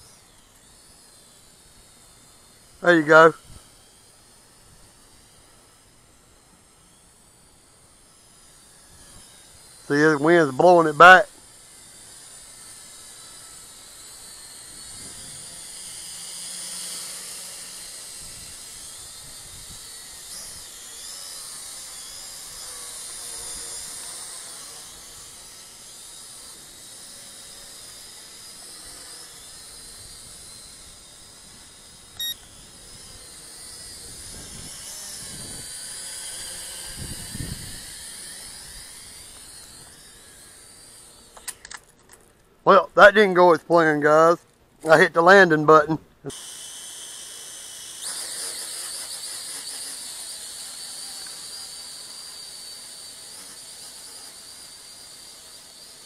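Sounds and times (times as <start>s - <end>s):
quadcopter motors whining: 0.0s - 56.0s
wind buffeting microphone: 36.9s - 37.9s.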